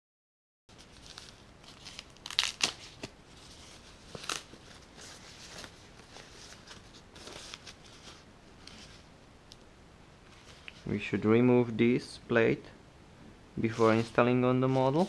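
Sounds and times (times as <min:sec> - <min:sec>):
paper crinkling and rustling: 0:00.7 - 0:09.1.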